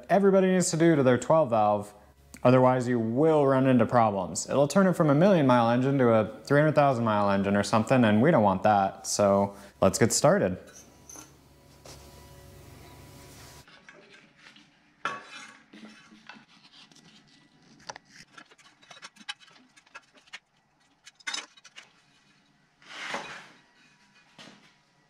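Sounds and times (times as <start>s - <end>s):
metal scrape: 13.0s - 20.4s, 21.0s - 24.4s.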